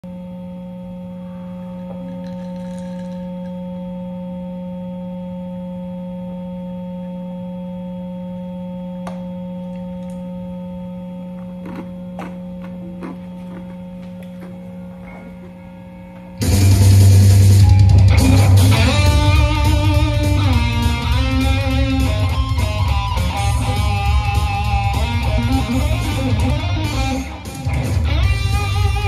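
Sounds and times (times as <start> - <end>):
guitar amplifier hum: 0.0 - 29.0.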